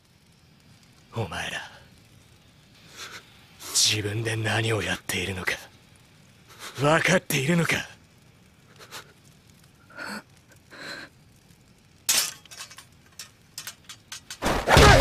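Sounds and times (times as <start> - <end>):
small metal clicks: 11.4 - 14.4.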